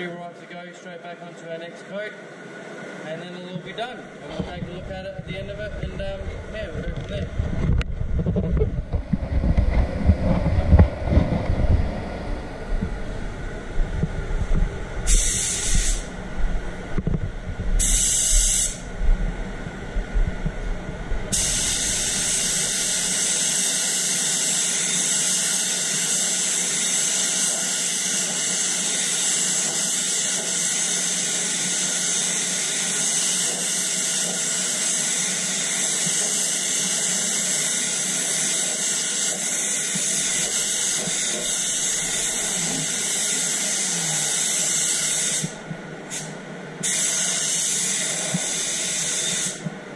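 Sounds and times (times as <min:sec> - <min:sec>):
rumbling handling noise: 0:04.3 - 0:18.0, 0:18.8 - 0:21.7
spray gun air hiss: 0:15.0 - 0:16.2, 0:17.8 - 0:18.9, 0:21.3 - 0:49.6.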